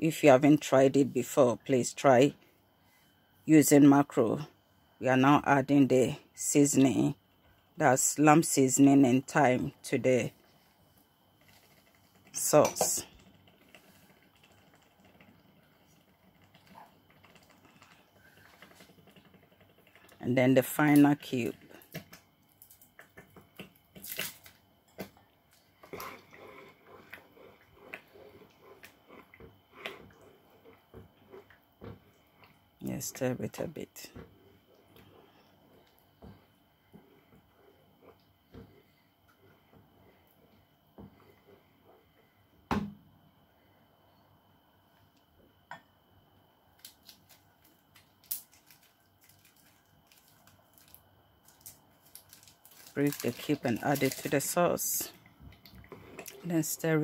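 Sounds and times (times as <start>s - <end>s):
wrapper crinkling: 46.8s - 54.9s.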